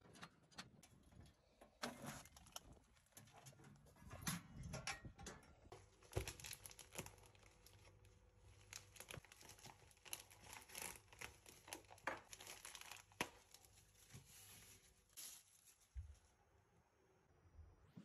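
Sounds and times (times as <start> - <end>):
plastic packaging crinkling and tearing: 2.0 - 3.2, 5.8 - 16.1.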